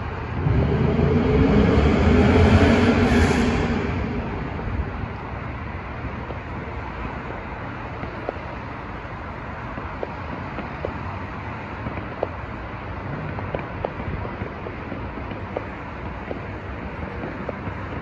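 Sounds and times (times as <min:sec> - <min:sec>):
traffic: 0:00.0 - 0:18.0
wind: 0:00.0 - 0:18.0
distant fireworks popping: 0:04.7 - 0:18.0.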